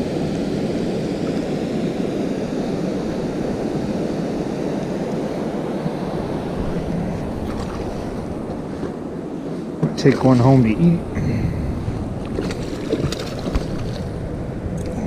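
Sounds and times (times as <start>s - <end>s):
wind buffeting microphone: 0.0s - 15.0s
river water moving: 5.4s - 10.8s, 11.8s - 15.0s.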